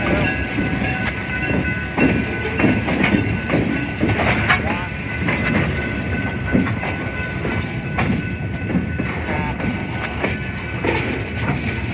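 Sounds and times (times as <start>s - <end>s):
train wheels rumbling on rail: 0.0s - 11.9s
wheels clacking over rail joints: 0.0s - 11.9s.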